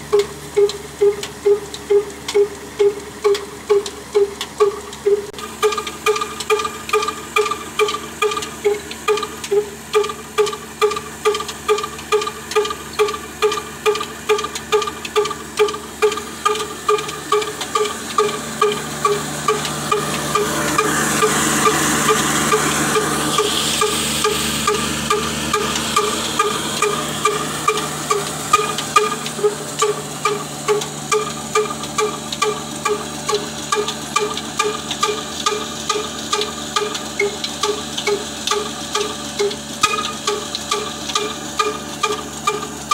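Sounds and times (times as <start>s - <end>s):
diesel engine beating: 0.0s - 42.9s
grain rushing through grinder: 13.7s - 42.9s.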